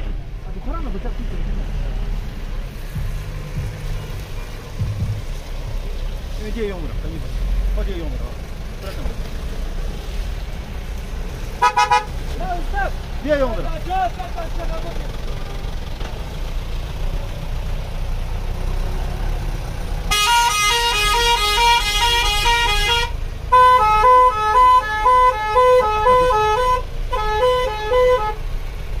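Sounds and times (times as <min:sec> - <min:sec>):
vehicle engines rumbling: 0:00.0 - 0:29.0
musical car horn playing tune: 0:11.6 - 0:12.1, 0:20.1 - 0:28.4.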